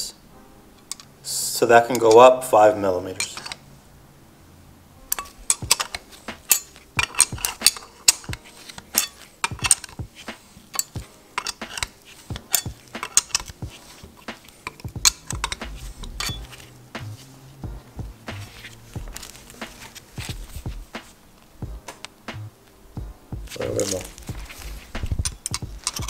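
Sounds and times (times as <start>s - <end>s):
spanner clinking on metal collar: 10.7s - 13.6s, 14.6s - 16.5s, 25.2s - 26.0s.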